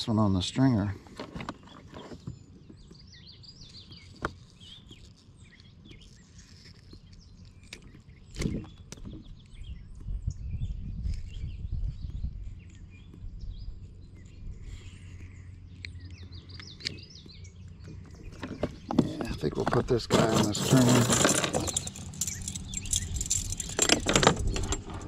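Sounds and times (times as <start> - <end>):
small birds chirping: 0.0 - 25.0
handling noise: 17.7 - 25.0.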